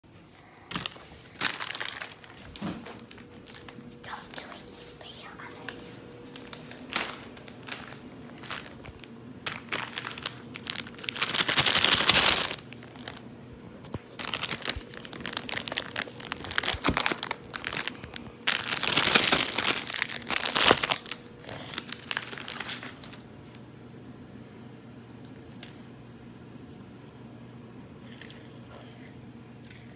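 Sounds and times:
crinkling and rustling: 0.3 - 23.6.

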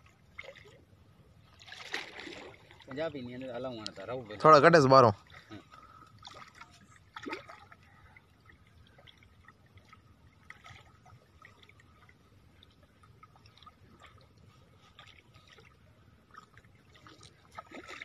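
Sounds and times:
fish splashing in river water: 1.5 - 3.1, 6.2 - 18.0.

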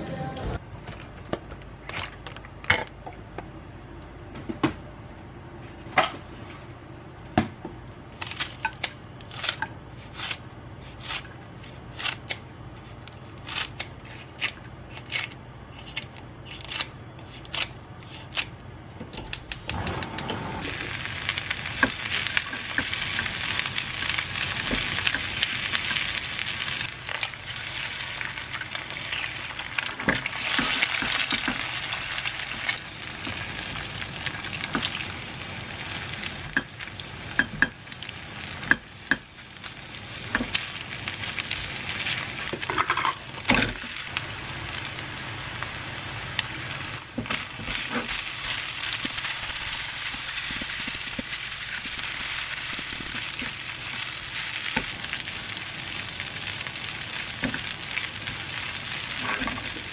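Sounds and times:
sizzle of frying in a pan: 20.6 - 59.9.

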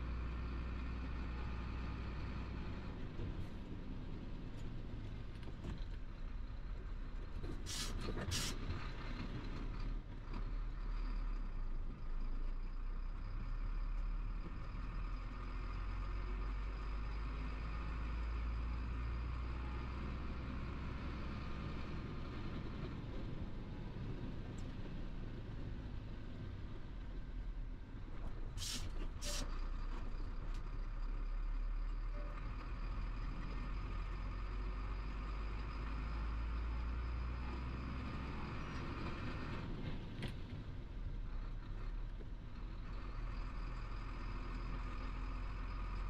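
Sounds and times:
truck diesel engine rumble: 0.0 - 46.0
short sharp air hiss bursts: 28.6 - 29.5.

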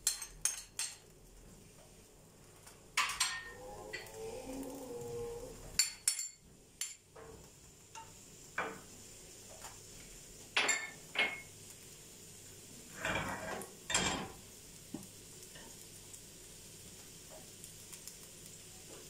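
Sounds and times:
glass bowl and tongs clinking on pans: 0.0 - 1.1, 3.0 - 4.2, 5.7 - 7.0, 10.6 - 11.5, 13.0 - 14.4
onions sizzling in oil: 0.0 - 19.0.

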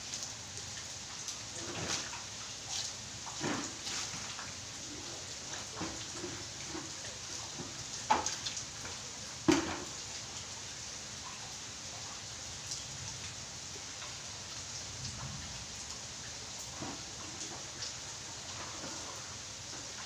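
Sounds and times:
rain falling on plants and tiles: 0.0 - 20.0
small drips: 0.0 - 20.0.

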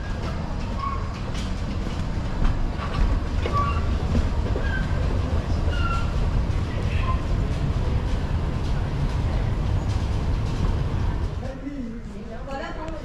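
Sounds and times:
moving walkway rumble: 0.0 - 12.2.

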